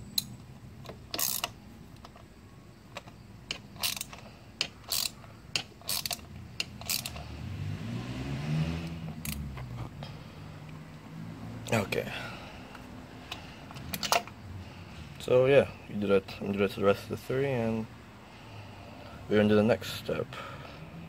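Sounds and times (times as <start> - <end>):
ratchet wrench clicking: 0.1 - 2.2, 2.9 - 7.3, 8.8 - 9.7, 12.7 - 14.3.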